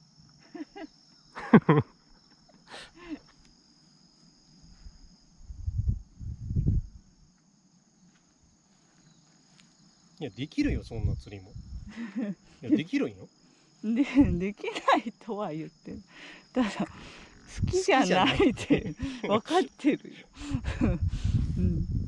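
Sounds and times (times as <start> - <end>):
insects trilling: 0.0 - 22.0
dull low thumps: 5.5 - 6.9, 17.5 - 19.2, 20.5 - 22.0
man's voice: 10.2 - 11.5, 12.6 - 13.2, 17.8 - 19.9.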